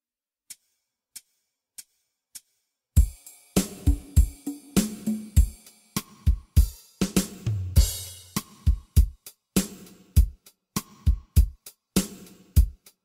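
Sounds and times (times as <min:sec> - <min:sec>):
drum kit beat: 0:03.0 - 0:13.0.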